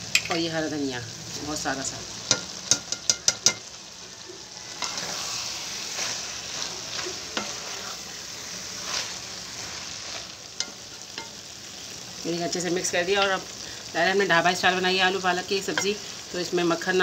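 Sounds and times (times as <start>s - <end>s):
curry sizzling in oil: 0.0s - 17.0s
wooden spatula scraping pan: 4.7s - 11.2s.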